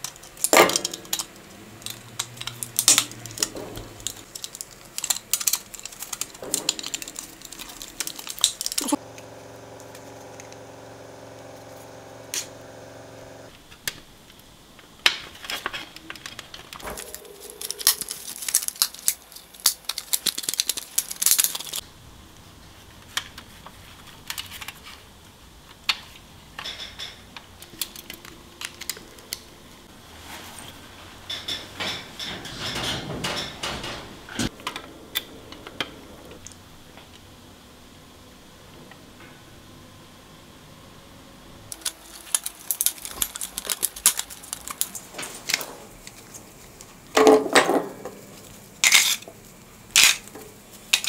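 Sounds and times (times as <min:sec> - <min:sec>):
toy parts clicking and clattering: 0:00.0 - 0:09.0, 0:15.2 - 0:21.8, 0:24.0 - 0:25.0, 0:25.9 - 0:29.4, 0:41.7 - 0:46.4, 0:47.2 - 0:49.3, 0:49.9 - 0:51.0
steady hum: 0:00.0 - 0:13.7.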